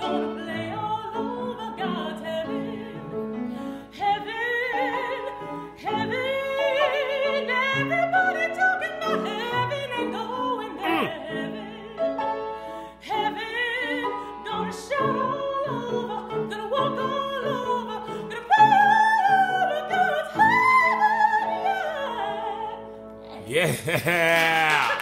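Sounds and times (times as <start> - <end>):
woman singing with vibrato: 3.9 - 12.0, 13.0 - 22.8.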